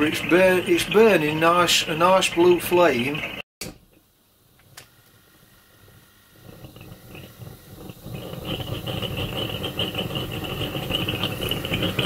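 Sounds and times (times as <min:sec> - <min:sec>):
gas burner flame rushing: 0:04.4 - 0:12.0.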